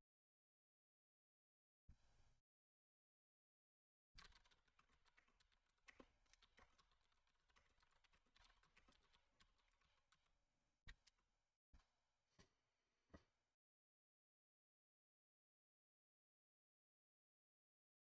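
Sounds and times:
typing on a keyboard: 4.2 - 10.2.

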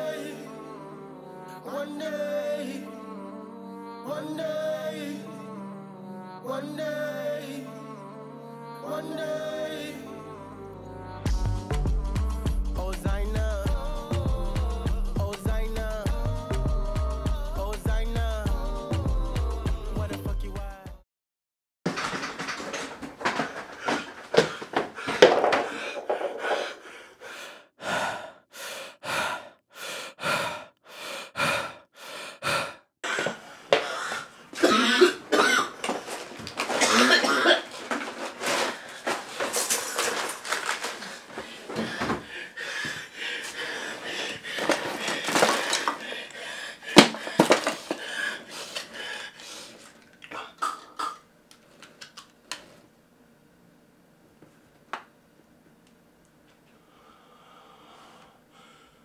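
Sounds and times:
man coughing and gasping: 34.6 - 36.0, 36.7 - 37.8.

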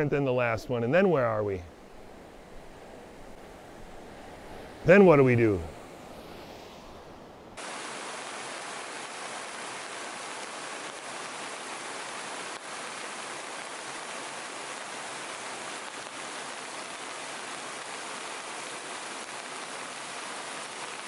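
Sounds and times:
creek rushing over rocks: 7.6 - 21.0.

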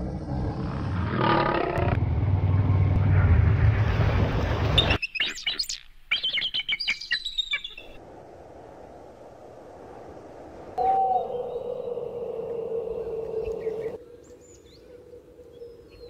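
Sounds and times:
bird chirping: 4.8 - 8.0, 10.8 - 16.0.

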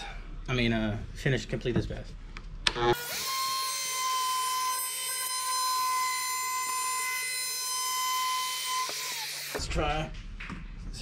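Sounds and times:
router whining: 2.7 - 9.7.

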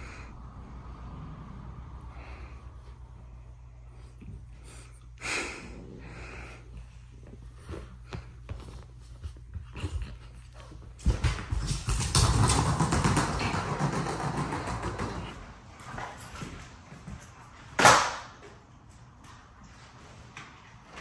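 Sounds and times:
soft scuffling: 6.8 - 11.8
animals scrambling and running off: 11.0 - 15.5.

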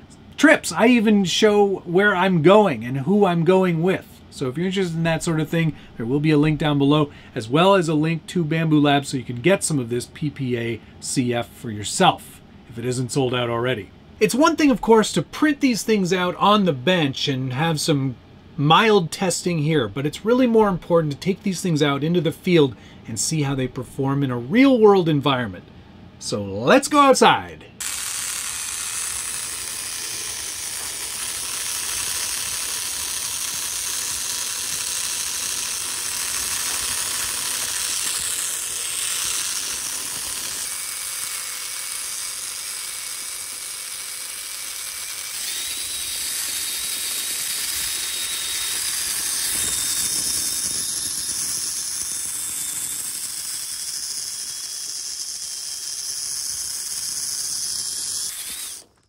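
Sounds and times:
electric motor whining: 27.8 - 59.0.

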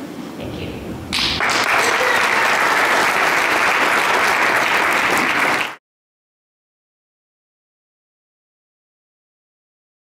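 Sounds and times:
audience applauding: 1.2 - 5.8.

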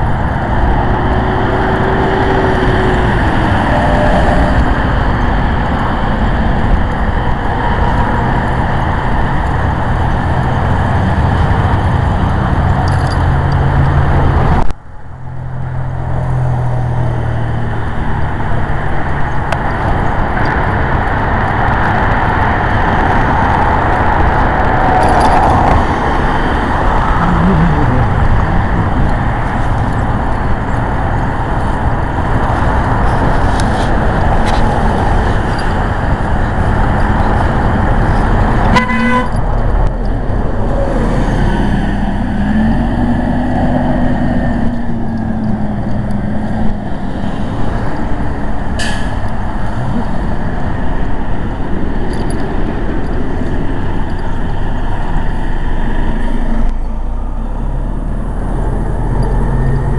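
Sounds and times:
moving road vehicle: 0.0 - 59.9
horn toot: 38.6 - 39.4.

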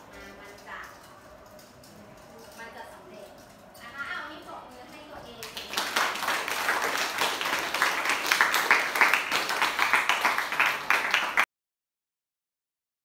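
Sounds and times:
many people clapping: 5.4 - 11.5.

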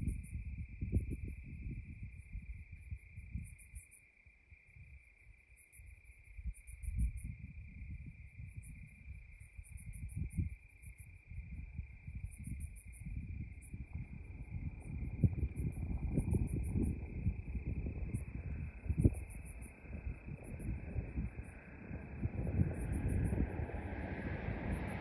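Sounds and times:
cricket trill: 0.0 - 25.0
high rapid insect chirping: 5.5 - 23.5
low uneven rumble: 13.0 - 25.0.

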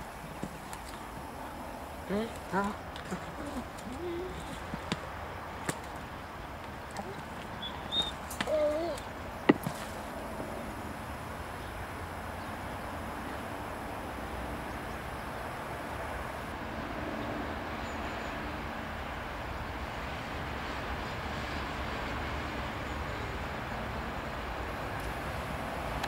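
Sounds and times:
distant helicopter drone: 0.0 - 26.0.

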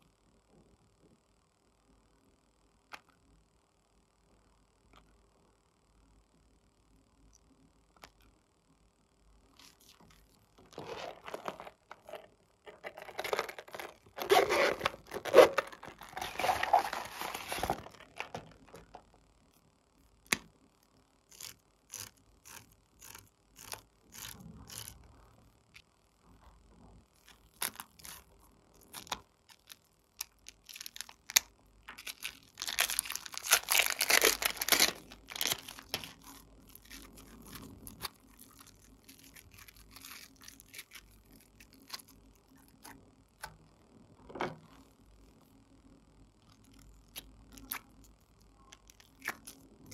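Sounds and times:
small clicks and pops: 2.9 - 3.2, 20.2 - 20.6
slime and plastic crinkling: 9.6 - 19.1, 27.2 - 43.5, 46.5 - 48.1, 48.7 - 49.9.

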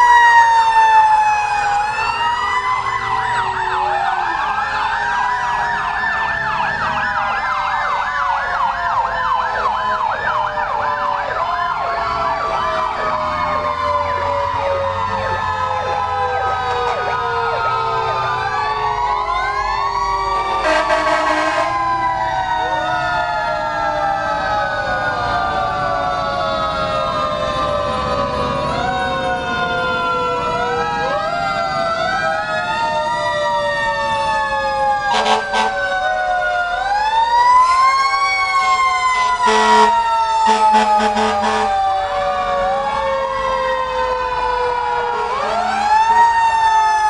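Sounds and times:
fire truck sirens: 0.0 - 47.0
loud horn blast: 20.4 - 21.9, 35.1 - 35.8, 39.2 - 41.8.

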